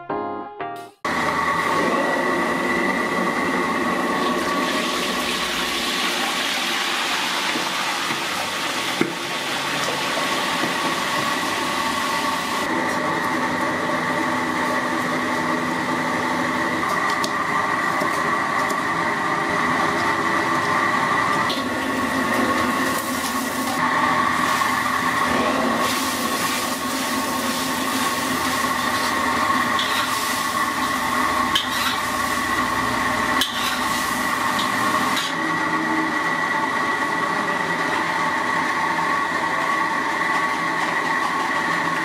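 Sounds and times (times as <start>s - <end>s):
gas burner roaring: 1.0s - 42.0s
oil deep-frying: 3.2s - 42.0s.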